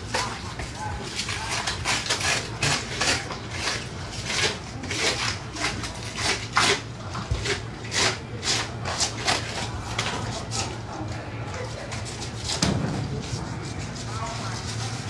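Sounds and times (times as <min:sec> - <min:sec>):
knife rasping through fish skin: 0:00.1 - 0:10.7.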